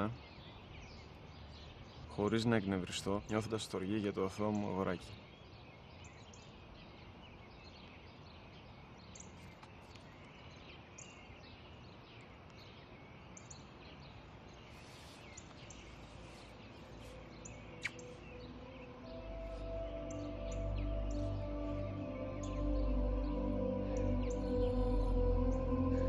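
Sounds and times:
small birds chirping: 0.0s - 26.0s
soft music: 15.8s - 26.0s.

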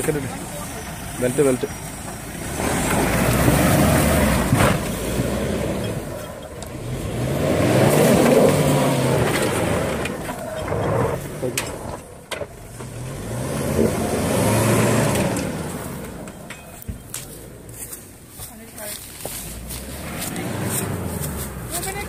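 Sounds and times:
engine revving hard: 2.4s - 5.9s, 6.8s - 11.9s, 12.8s - 16.1s, 19.6s - 22.0s.

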